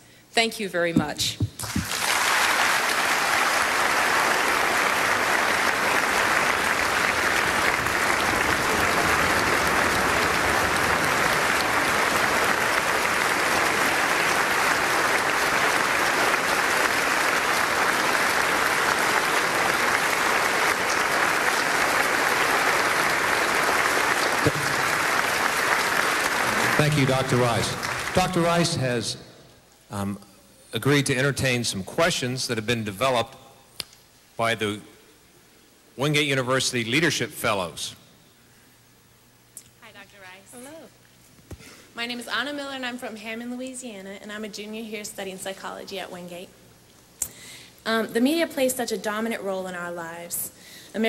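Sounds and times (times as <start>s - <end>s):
audience applauding: 1.6s - 29.2s.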